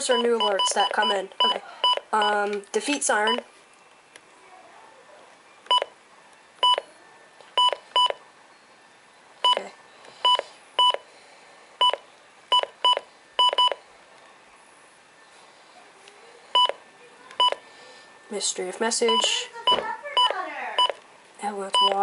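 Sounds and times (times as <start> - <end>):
electronic key beeps: 5.7 - 5.9, 11.8 - 13.8, 17.4 - 17.6, 21.8 - 22.0.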